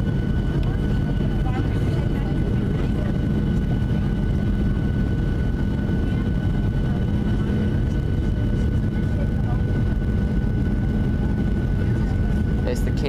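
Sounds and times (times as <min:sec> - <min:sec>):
airplane cabin airflow and engines: 0:00.0 - 0:13.0.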